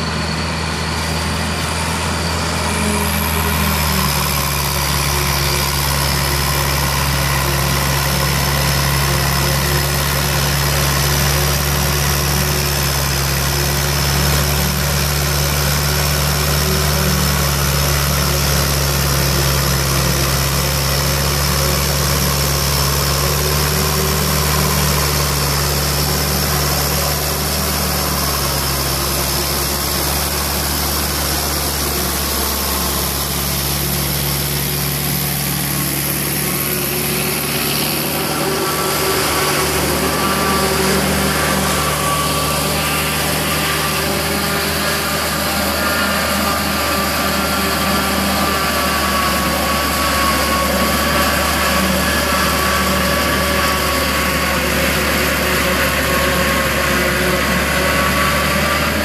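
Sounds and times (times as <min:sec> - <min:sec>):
machinery drone: 0:00.0 - 0:59.0
tractor diesel engine: 0:00.0 - 0:59.0
high whine: 0:26.7 - 0:54.1.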